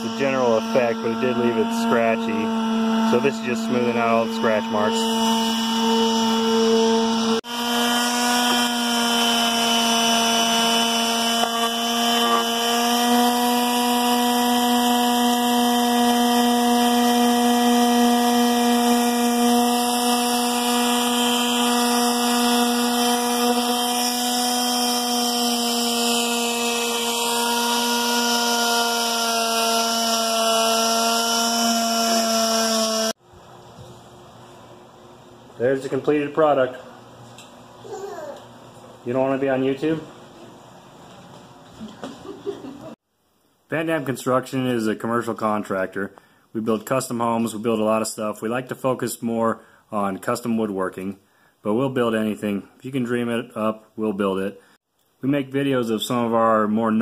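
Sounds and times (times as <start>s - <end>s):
palm sander humming: 0.0s - 33.2s.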